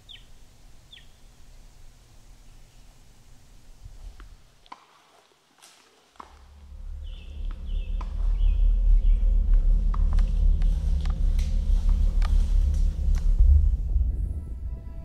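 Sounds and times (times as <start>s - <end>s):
footsteps on forest floor: 4.0s - 13.6s
deep low rumbling drone: 6.5s - 15.0s.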